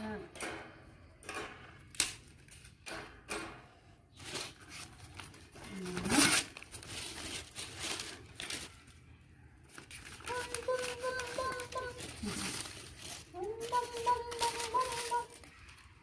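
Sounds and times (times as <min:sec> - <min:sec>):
newspaper rustling and tearing: 0:04.1 - 0:16.0.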